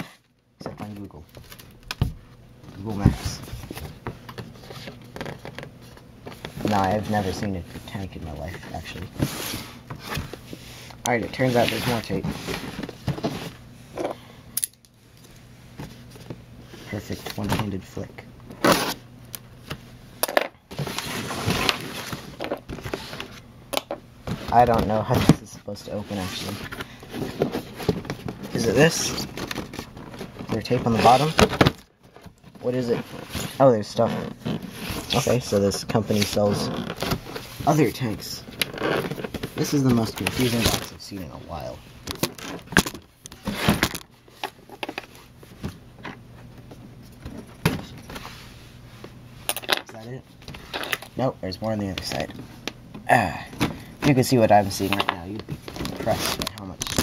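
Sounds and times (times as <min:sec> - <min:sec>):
cardboard box rustling and scraping: 0:06.4 - 0:13.6, 0:20.7 - 0:23.4, 0:24.3 - 0:31.8, 0:32.7 - 0:40.9.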